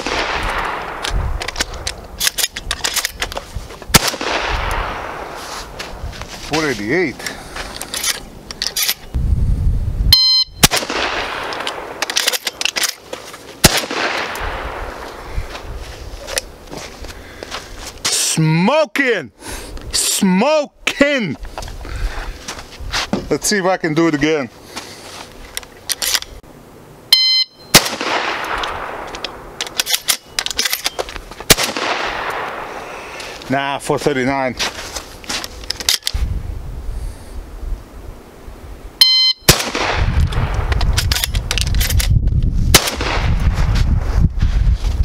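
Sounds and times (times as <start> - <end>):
shotgun shots: 0.0 - 1.1, 3.9 - 5.4, 10.6 - 12.3, 13.6 - 15.1, 27.7 - 29.1, 31.5 - 32.8, 39.5 - 40.6, 42.7 - 43.4
shells loading clicks: 0.2 - 3.4, 7.8 - 9.2, 10.7 - 14.5, 25.5 - 26.4, 27.8 - 32.6, 35.7 - 36.2, 39.5 - 42.2
shotgun blast with echo: 3.9 - 5.4, 39.5 - 40.2
shot timer beep: 10.1 - 10.6, 27.1 - 27.7, 39.0 - 39.5.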